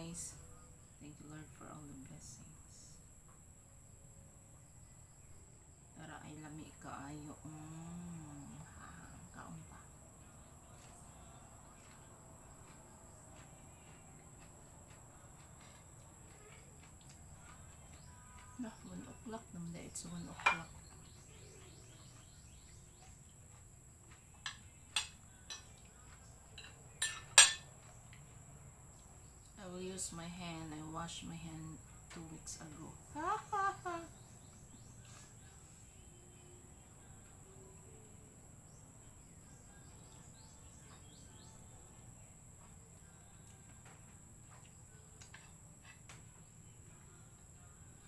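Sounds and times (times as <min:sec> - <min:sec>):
crickets droning: 0:00.0 - 0:48.0
faint cricket chirps: 0:00.0 - 0:48.0
spoon clinking on ceramic plate: 0:26.6 - 0:27.7.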